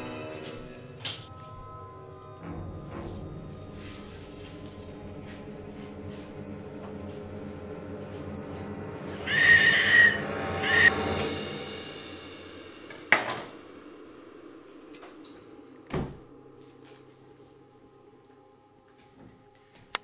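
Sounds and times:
suspenseful film music: 0.0 - 20.0
glass bottle squeals: 9.1 - 10.9.

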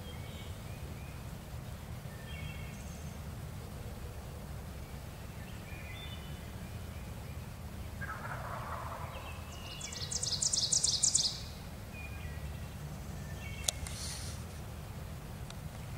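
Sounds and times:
turkey gobbling: 8.0 - 11.4.

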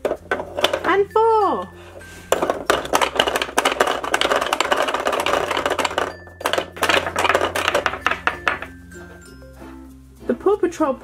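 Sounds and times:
plastic toy clicking and clattering: 0.0 - 1.1, 2.3 - 8.7.

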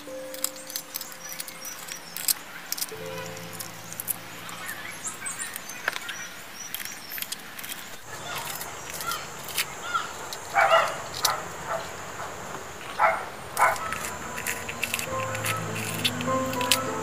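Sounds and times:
small birds chirping: 0.0 - 17.0
high insect buzz: 13.6 - 17.0.

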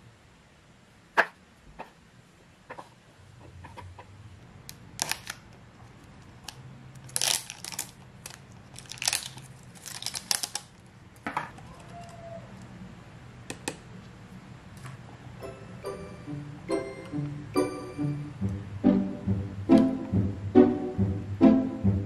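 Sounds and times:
plastic seal tearing: 5.0 - 5.4, 7.0 - 10.8.

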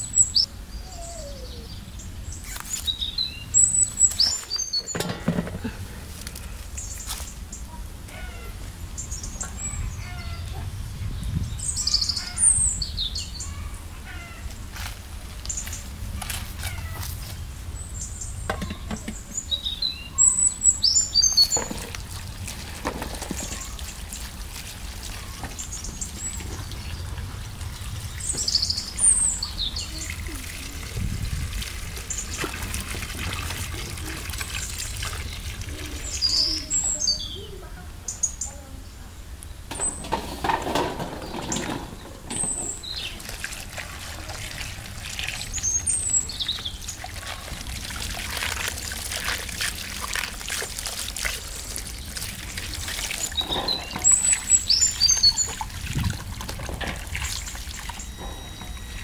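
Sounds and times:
birds chirping: 0.0 - 50.3, 51.1 - 59.0
peppers splashing in water: 2.4 - 3.0, 42.4 - 58.2
water pouring from tap into basin: 20.5 - 36.9, 42.4 - 59.0.

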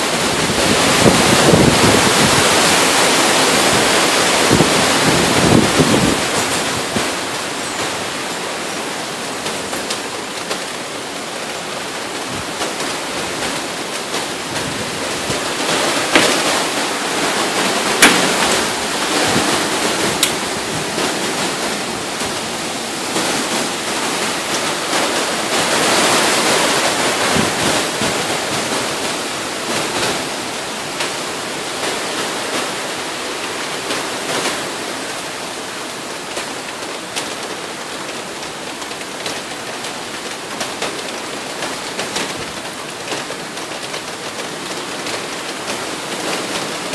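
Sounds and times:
gusting wind: 0.0 - 36.0
wind-driven rain: 0.0 - 46.9.

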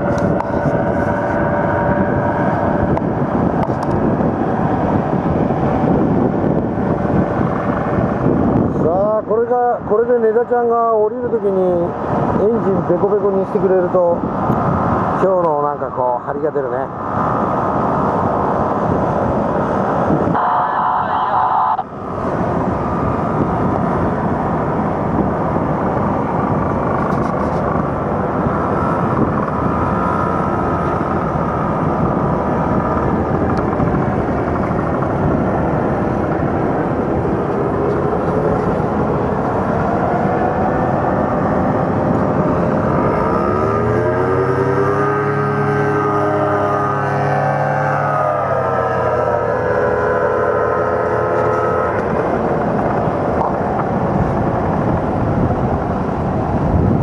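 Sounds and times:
paramotor engine running: 0.0 - 8.8, 20.4 - 57.0
wind on microphone: 0.0 - 57.0.

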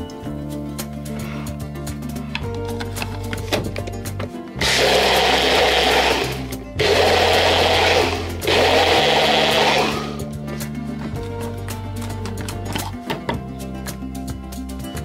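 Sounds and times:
background music: 0.0 - 15.0
blender running: 4.6 - 10.2.

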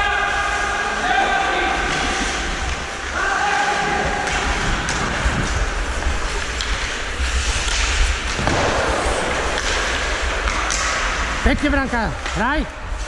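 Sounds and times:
skates scraping ice: 0.1 - 13.0
wind rumble on microphone: 4.1 - 9.3.

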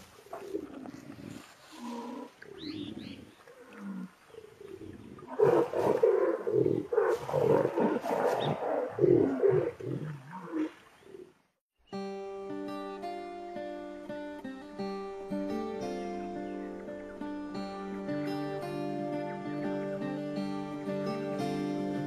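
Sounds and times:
jaguars growling and snarling: 4.7 - 10.8.

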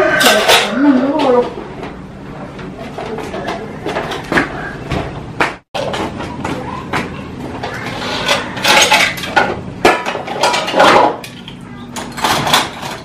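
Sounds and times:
plates and bowls clattering: 0.0 - 1.6, 7.6 - 13.0.

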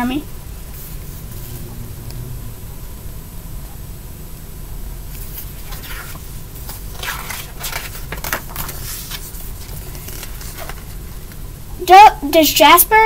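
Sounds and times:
low hum: 0.0 - 12.2
paper pages rustling: 5.2 - 11.4.

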